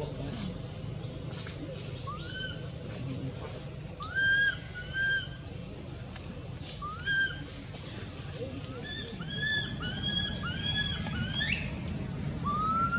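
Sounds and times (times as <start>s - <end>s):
steady low hum: 0.0s - 12.9s
baby monkey crying: 4.0s - 5.3s.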